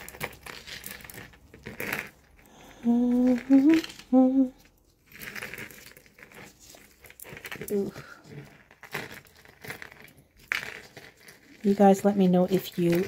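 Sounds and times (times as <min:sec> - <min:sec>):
jewelry clicking and rustling: 0:00.0 - 0:13.0
woman humming: 0:02.7 - 0:04.7.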